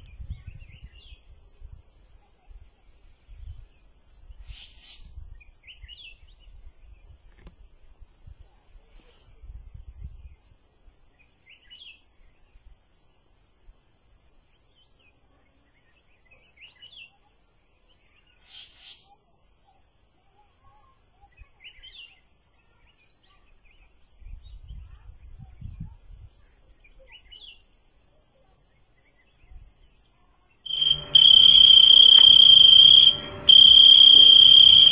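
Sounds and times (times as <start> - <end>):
night insects trilling: 30.7 - 34.9
short chirp: 30.7 - 34.9
steady high-pitched tone: 30.7 - 34.9.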